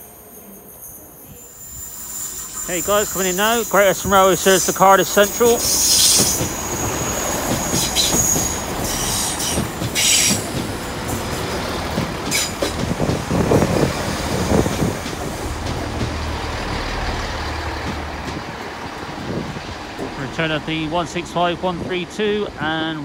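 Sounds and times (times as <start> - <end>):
train wheel squeal: 0.0 - 10.5.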